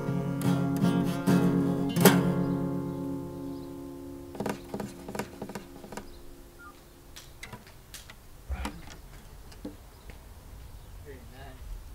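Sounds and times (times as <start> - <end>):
acoustic guitar chord: 0.0 - 7.1
dull thump: 4.3 - 6.1
guitar handling clicks and knocks: 4.3 - 6.3, 7.2 - 9.8.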